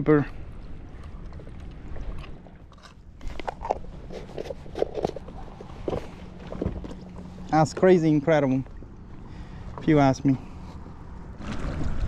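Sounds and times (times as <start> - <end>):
steady low hum: 0.0 - 12.0
small clicks and crunching handling: 1.3 - 7.3.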